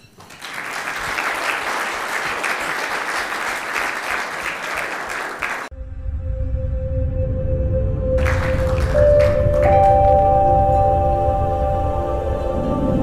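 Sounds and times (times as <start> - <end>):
audience applauding: 0.1 - 5.7, 8.2 - 10.3
ambient music with low drone: 5.7 - 13.0.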